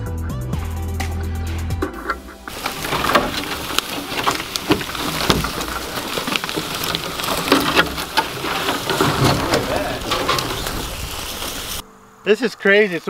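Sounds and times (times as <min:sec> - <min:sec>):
twigs and branches crackling: 0:02.2 - 0:11.9.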